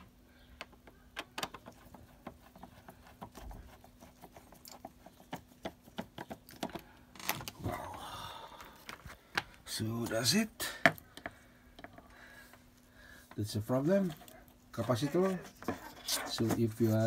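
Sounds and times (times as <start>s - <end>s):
scraping: 13.9s - 17.0s.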